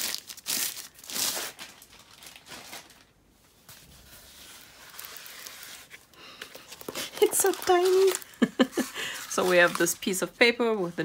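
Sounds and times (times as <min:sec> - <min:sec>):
plastic bag crinkling: 0:00.0 - 0:03.2, 0:06.5 - 0:10.3.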